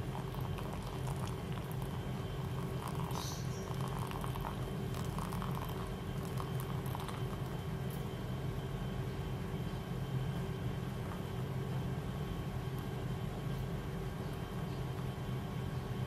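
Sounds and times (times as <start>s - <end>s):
water trickling onto coffee grounds: 0.0s - 8.7s, 10.4s - 11.6s
steady low hum: 0.0s - 16.0s.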